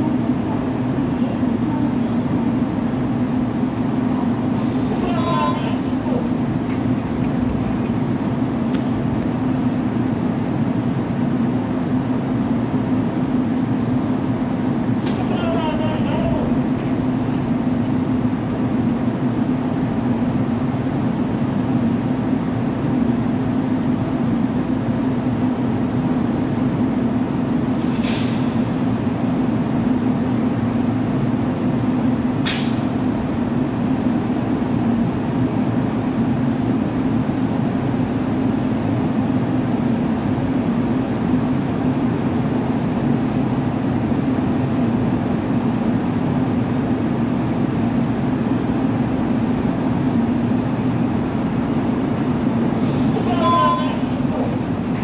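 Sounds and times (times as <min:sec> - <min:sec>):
train equipment low hum: 0:00.0 - 0:55.0
brake air hiss: 0:27.8 - 0:29.0, 0:32.4 - 0:33.0.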